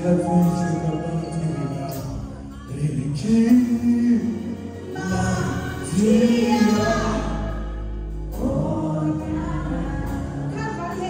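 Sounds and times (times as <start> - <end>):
low bass line: 0.0 - 11.0
woman singing gospel: 2.4 - 11.0.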